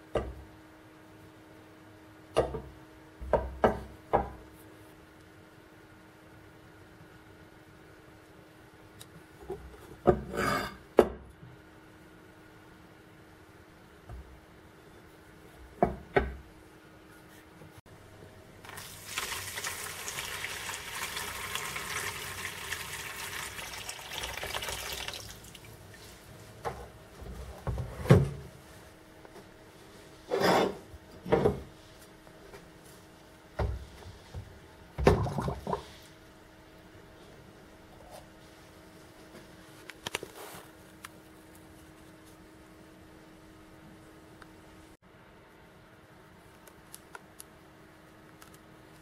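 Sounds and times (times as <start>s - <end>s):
liquid pouring into plastic tub: 18.6s - 26.0s.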